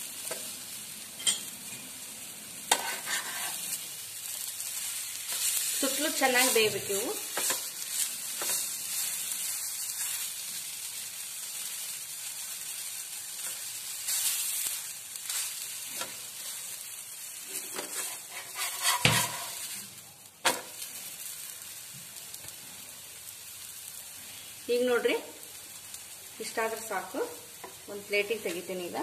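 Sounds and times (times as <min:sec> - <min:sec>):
omelette sizzling in oil: 0:00.0 - 0:29.0
spatula scraping a pan: 0:02.7 - 0:03.9, 0:04.9 - 0:09.2, 0:17.4 - 0:19.8.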